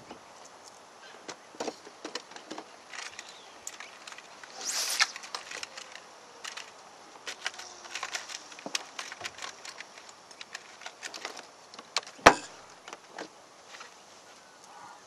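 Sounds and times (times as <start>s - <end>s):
fishing rod swishing: 4.5s - 5.3s.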